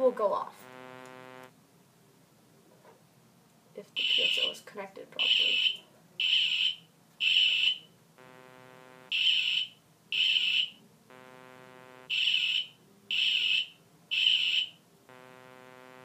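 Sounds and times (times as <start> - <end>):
high-pitched buzzer beeps: 0.0 - 1.5, 8.2 - 9.2, 11.1 - 12.1, 15.1 - 16.0
low buzzing tone: 0.0 - 1.5, 8.2 - 9.1, 11.1 - 12.1, 15.1 - 16.0.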